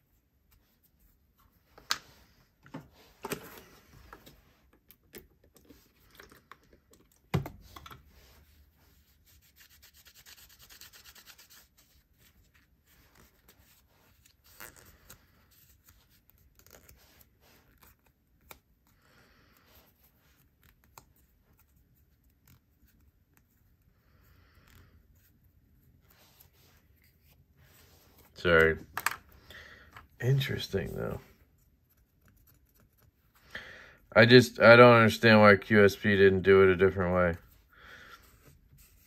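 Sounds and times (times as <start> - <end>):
quick rubbing or scraping: 8.0 - 12.0.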